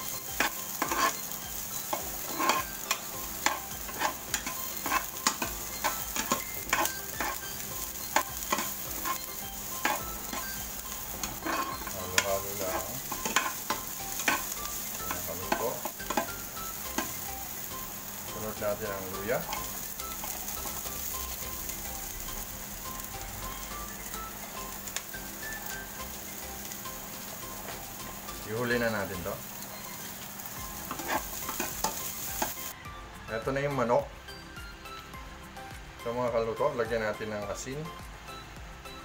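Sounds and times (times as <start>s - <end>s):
onions sizzling in oil: 0.0s - 39.0s
utensil scraping and tapping pan: 0.4s - 1.2s, 1.9s - 7.4s, 11.2s - 14.5s.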